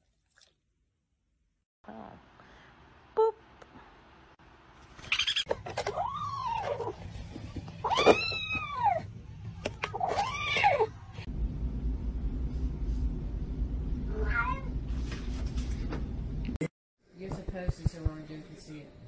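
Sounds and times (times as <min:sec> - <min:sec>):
low steady hum: 0:11.2 - 0:16.6.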